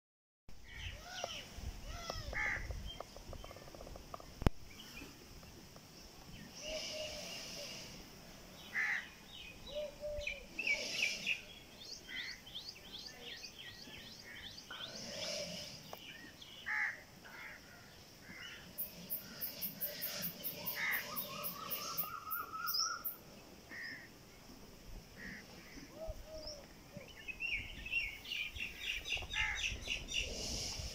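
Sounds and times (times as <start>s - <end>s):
birds chirping: 2.5s - 24.1s.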